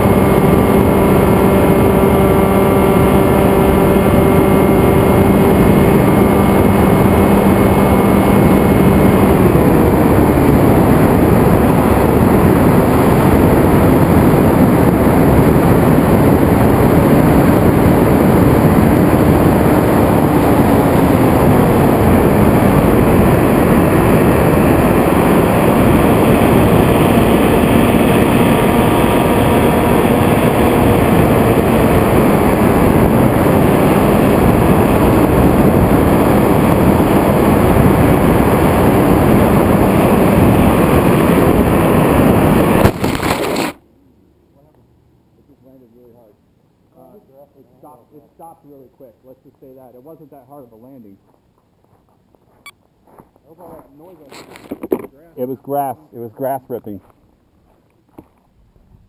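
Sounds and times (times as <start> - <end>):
wind rushing over microphone: 0.0 - 43.8, 58.5 - 59.0
electric motor and propeller hum: 0.0 - 43.9.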